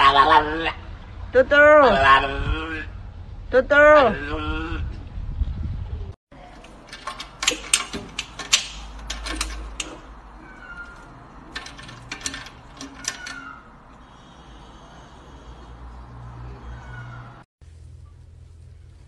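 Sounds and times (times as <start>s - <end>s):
lock and key rattling: 6.4s - 14.1s.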